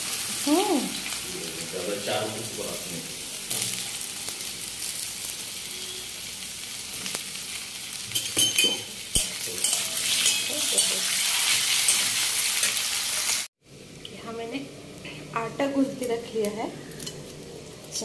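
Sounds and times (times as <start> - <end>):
food sizzling in hot oil: 0.0 - 18.0
metal spatula scraping pan: 8.2 - 12.8.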